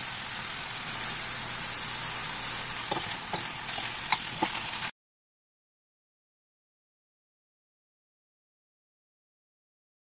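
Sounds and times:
chicken sizzling in oil: 0:00.0 - 0:04.9
spatula scraping pan: 0:02.6 - 0:04.9.

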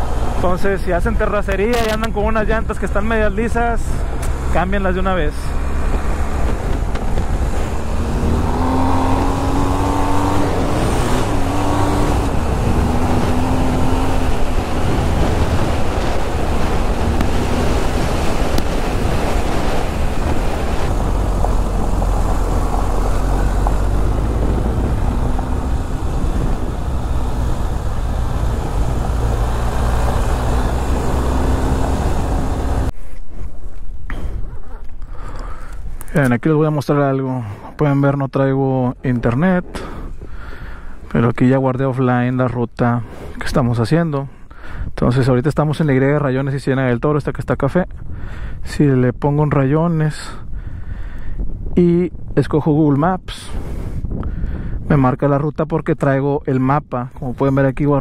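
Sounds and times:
wind noise: 0:00.0 - 0:36.2, 0:44.4 - 0:45.8, 0:47.4 - 0:55.6
tyres on dirt road: 0:00.0 - 0:58.0.

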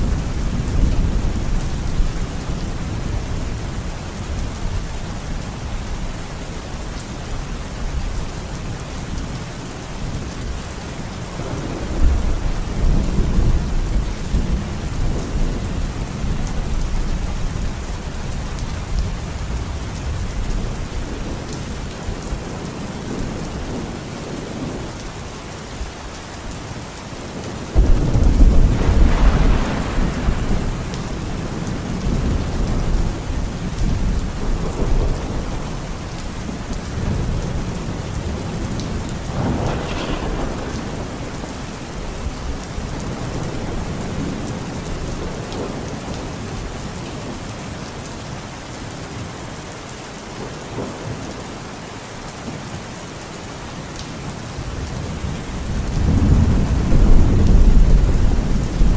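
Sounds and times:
heavy rain falling: 0:00.0 - 0:58.9
thunder rumbling: 0:11.3 - 0:18.0, 0:27.3 - 0:46.8, 0:54.8 - 0:58.9.

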